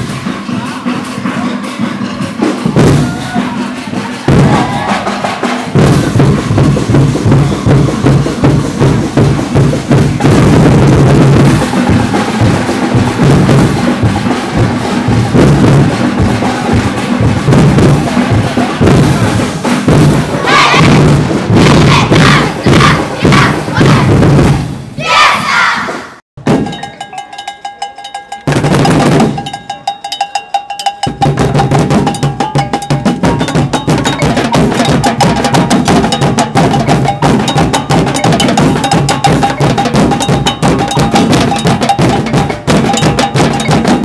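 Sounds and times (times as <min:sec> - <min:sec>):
percussion band drumming dance beat: 0:00.0 - 0:44.0
crowd shouts: 0:02.8 - 0:06.6, 0:20.2 - 0:21.0, 0:21.6 - 0:24.2, 0:25.0 - 0:26.0.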